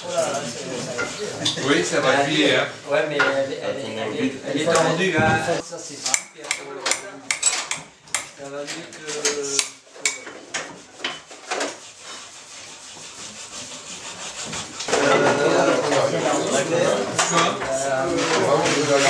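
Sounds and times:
indistinct crowd voices: 14.4 - 19.0.

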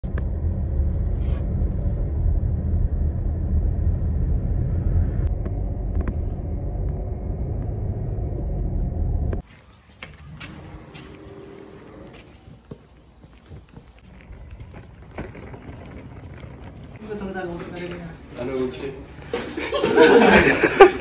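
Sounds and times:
car driving low rumble: 0.0 - 9.4, 13.6 - 17.6.

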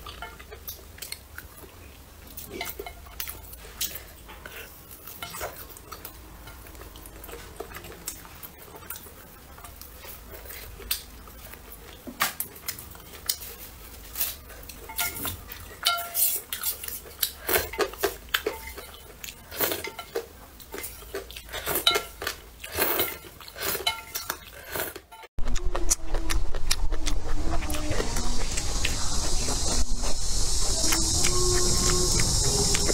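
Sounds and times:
chopsticks clinking on a metal bowl: 14.2 - 25.3.

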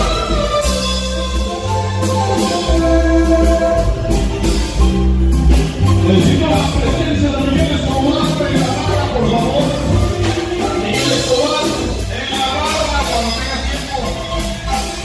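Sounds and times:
marimba dance music: 0.0 - 15.0
percussion beat: 0.0 - 15.0.

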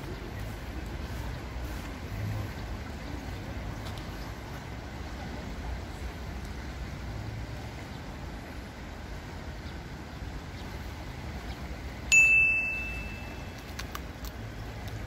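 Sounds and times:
high bell ding: 12.1 - 13.6.

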